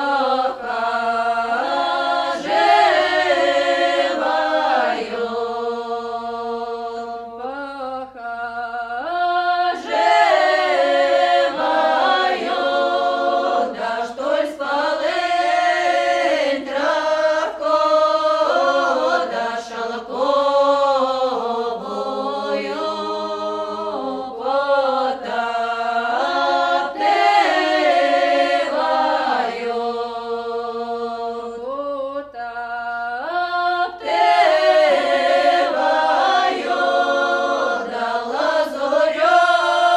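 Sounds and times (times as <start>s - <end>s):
choir singing a cappella: 0.0s - 39.9s.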